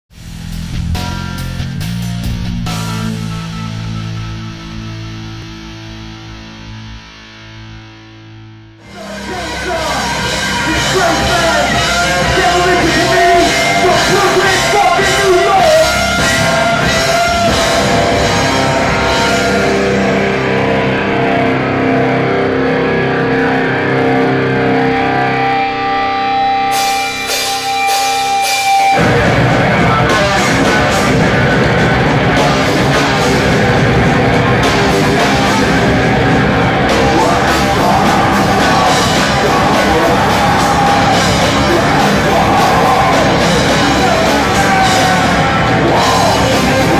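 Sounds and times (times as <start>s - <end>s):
bass guitar: 0.0s - 46.9s
distorted electric guitars: 0.0s - 46.9s
drums: 0.0s - 46.9s
shouted vocals: 8.9s - 19.8s, 29.6s - 46.9s.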